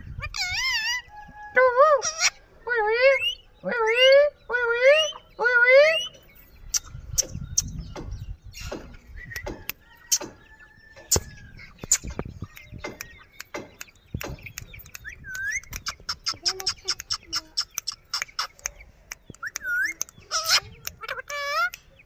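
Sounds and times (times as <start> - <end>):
parakeet chirps: 11.1 - 22.0
parakeet clicks: 11.8 - 21.9.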